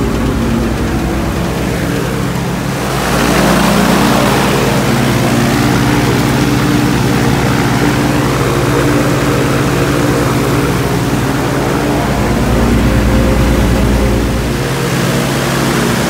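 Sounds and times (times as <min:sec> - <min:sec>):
aircraft engine running: 0:00.0 - 0:16.0.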